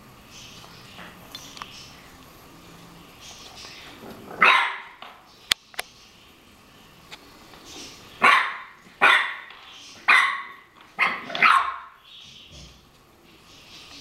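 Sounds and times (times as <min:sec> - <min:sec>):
dog barking: 0:04.4 - 0:05.0, 0:08.2 - 0:09.5, 0:10.1 - 0:12.0.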